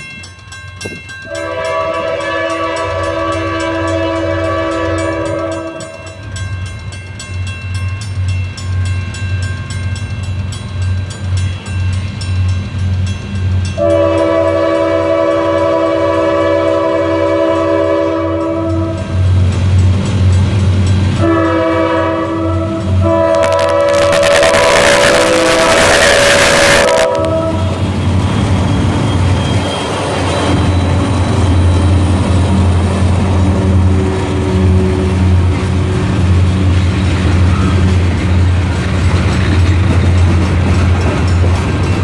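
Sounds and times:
diesel locomotive engine rumble: 0.0s - 42.0s
train air horn blasts: 1.3s - 6.1s, 13.8s - 19.2s, 21.2s - 27.8s.

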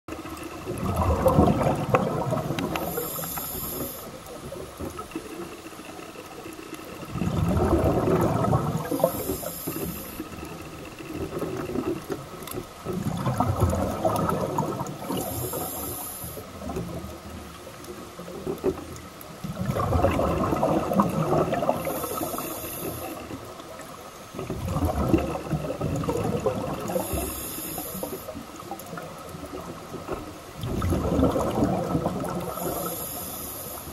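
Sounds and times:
exhaled bubbles gurgling: 0.1s - 33.9s
regulator hiss: 2.7s - 4.4s, 8.8s - 10.7s, 15.2s - 16.6s, 21.8s - 23.4s, 26.9s - 28.4s, 32.4s - 33.9s.

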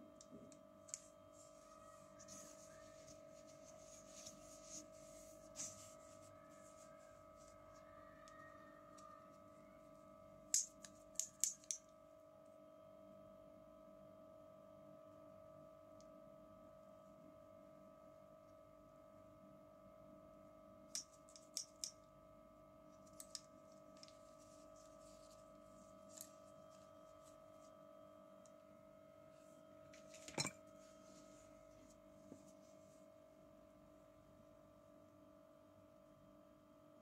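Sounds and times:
faint steady hum: 0.0s - 37.0s
plastic toy tools clicking: 10.5s - 11.8s.

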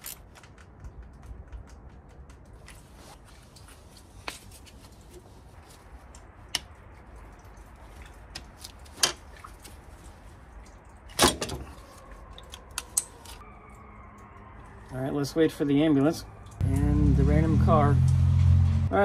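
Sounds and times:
pliers and hose clamp clicking: 12.5s - 13.4s.

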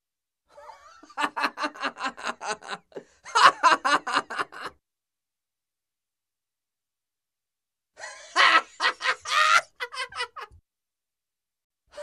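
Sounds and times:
man laughing heartily: 0.5s - 4.8s, 8.0s - 10.6s.

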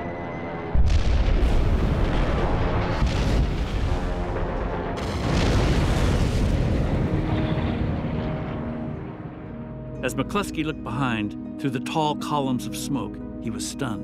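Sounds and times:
background music sustained notes: 0.0s - 14.0s
explosion booms: 0.8s - 8.1s.

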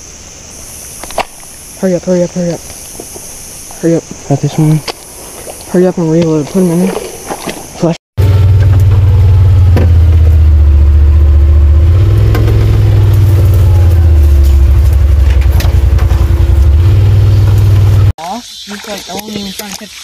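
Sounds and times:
vehicle engine droning: 8.2s - 18.2s.

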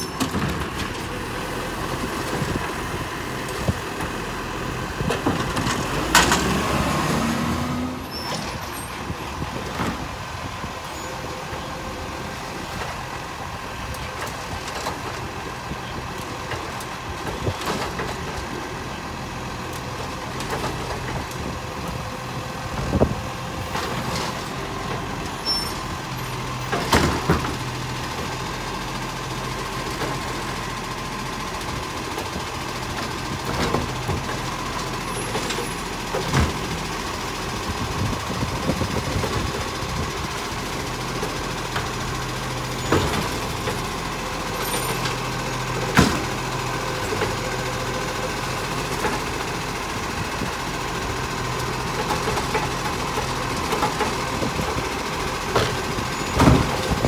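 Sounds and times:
garbage truck engine running: 0.0s - 57.0s
hydraulic arm lifting bins: 0.0s - 57.0s
bins knocking against hopper: 55.5s - 57.0s.

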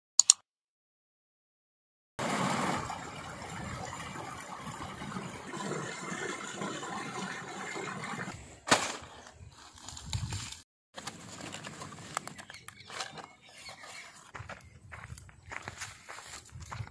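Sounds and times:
stream water rushing: 2.2s - 8.3s.

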